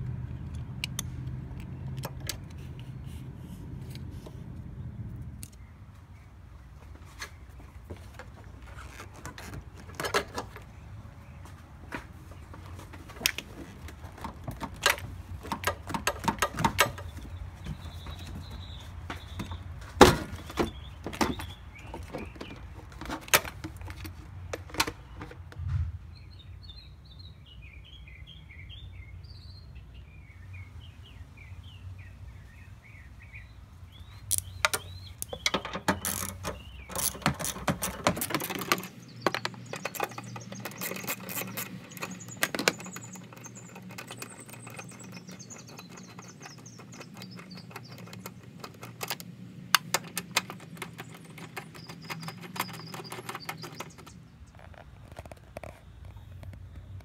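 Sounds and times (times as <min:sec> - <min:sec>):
small birds chirping: 0:00.3 - 0:57.0
plastic intake tube clicking and scraping: 0:19.4 - 0:25.6, 0:34.3 - 0:57.0.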